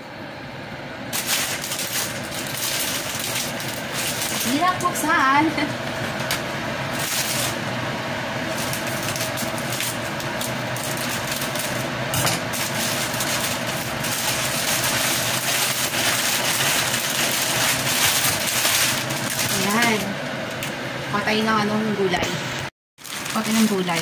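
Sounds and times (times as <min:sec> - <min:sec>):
exhaust fan humming: 0:00.0 - 0:24.0
plastic packet crackling: 0:01.1 - 0:05.3, 0:06.2 - 0:07.6, 0:08.4 - 0:20.7, 0:23.0 - 0:24.0.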